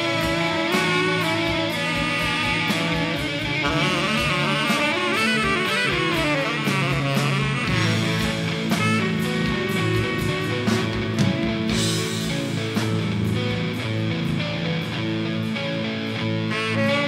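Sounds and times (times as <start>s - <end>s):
bending lead electric guitar: 0.0s - 17.0s
rock band playing live: 0.0s - 17.0s.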